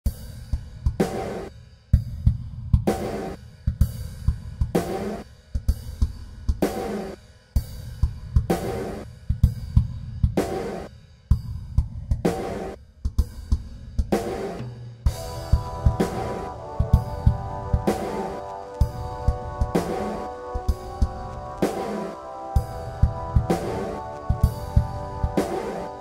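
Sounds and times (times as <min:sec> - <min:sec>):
drum kit beat: 0:00.0 - 0:26.0
cymbal accents: 0:15.0 - 0:26.0.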